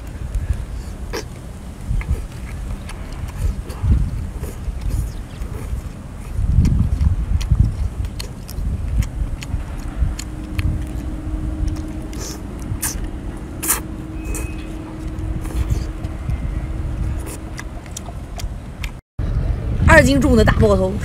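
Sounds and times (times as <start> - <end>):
low rumble: 0.0 - 21.0
steady low hum: 0.0 - 21.0
wet mouth clicks and slurps: 1.1 - 16.1.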